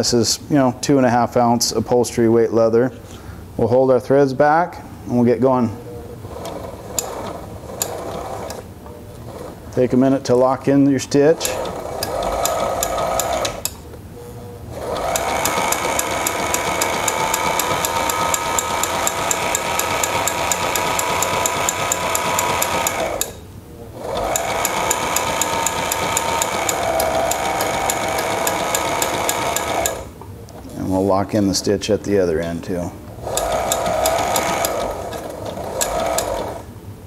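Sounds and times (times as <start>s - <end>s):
sewing machine motor whine: 6.2s - 9.9s, 11.3s - 13.7s, 14.7s - 23.4s, 24.0s - 30.2s, 33.1s - 36.7s
sewing machine needle ticking: 6.4s - 8.6s, 11.4s - 13.8s, 14.8s - 23.4s, 24.0s - 30.1s, 33.2s - 36.6s.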